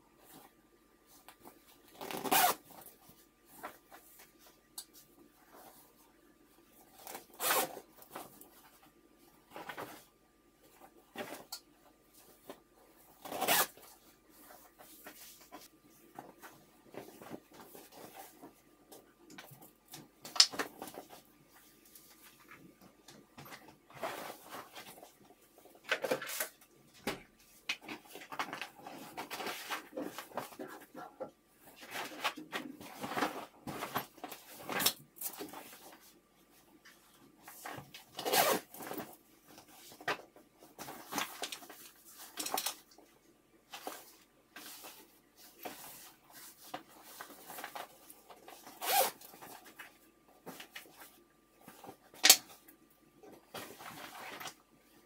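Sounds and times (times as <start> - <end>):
zipper pulled: 2.0 - 2.6, 7.0 - 7.8, 13.2 - 13.8, 38.2 - 38.7, 48.7 - 49.3.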